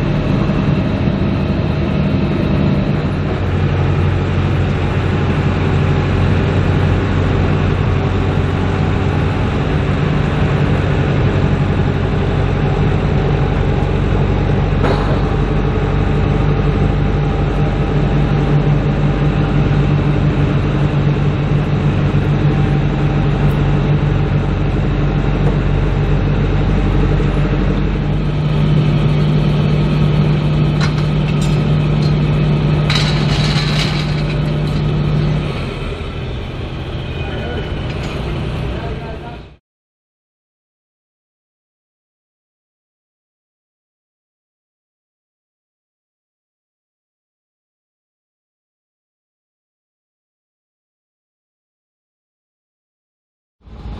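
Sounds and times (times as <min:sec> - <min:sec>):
heavy machinery idling: 0:00.0 - 0:39.6.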